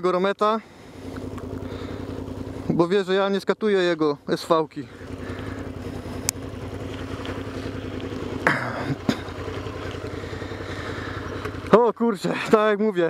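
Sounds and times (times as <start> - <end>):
motorcycle engine idling: 0.0 - 13.0.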